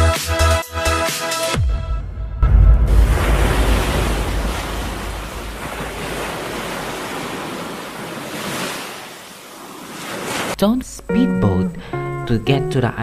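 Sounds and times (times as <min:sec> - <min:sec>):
surf washing on shore: 0:02.9 - 0:10.6.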